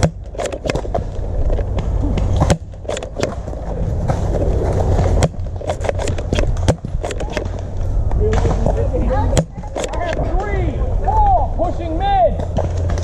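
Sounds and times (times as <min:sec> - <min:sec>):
sharp clicks and knocks: 0:00.0 - 0:04.2, 0:05.1 - 0:10.5
wind rumble: 0:00.0 - 0:13.0.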